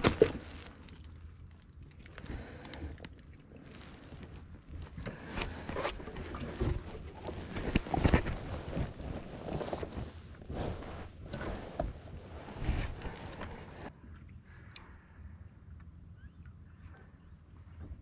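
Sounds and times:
rustling: 0:00.0 - 0:13.9.

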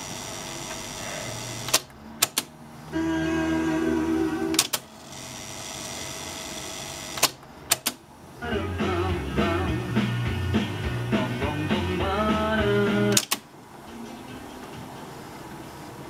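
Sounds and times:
tape winding whir: 0:00.0 - 0:08.0
music from tape: 0:03.0 - 0:05.0, 0:08.4 - 0:15.6.

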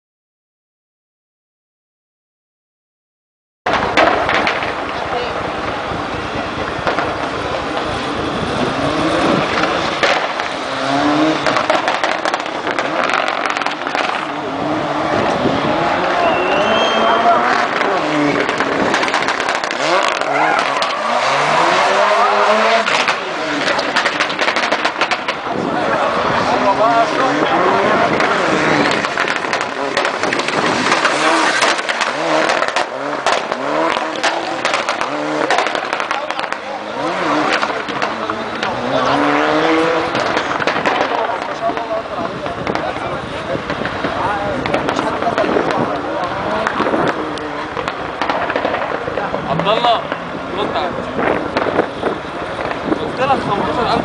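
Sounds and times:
anti-lag cracks and pops: 0:03.7 - 0:05.0, 0:09.5 - 0:10.6, 0:11.4 - 0:14.3, 0:18.4 - 0:20.9, 0:22.9 - 0:25.5, 0:28.2 - 0:36.7, 0:40.1 - 0:43.0, 0:43.6 - 0:50.2
car engine revving hard: 0:05.4 - 0:54.0.

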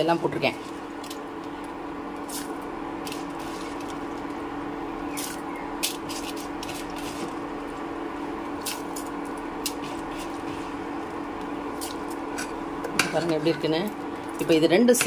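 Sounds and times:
induction hob hum: 0:00.0 - 0:15.0.

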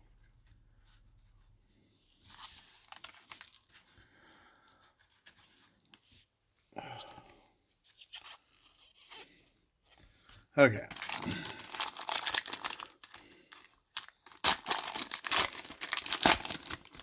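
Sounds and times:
foil wrapper crinkling: 0:02.7 - 0:03.8, 0:10.9 - 0:17.0.

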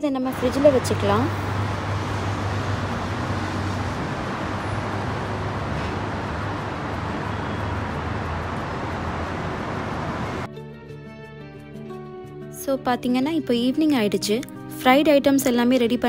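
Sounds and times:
road traffic: 0:00.2 - 0:10.5.

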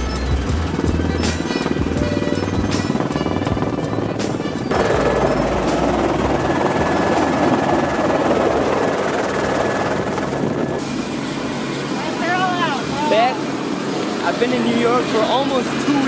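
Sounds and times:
background music: 0:00.0 - 0:09.8
helicopter engine and rotor: 0:00.0 - 0:16.0.

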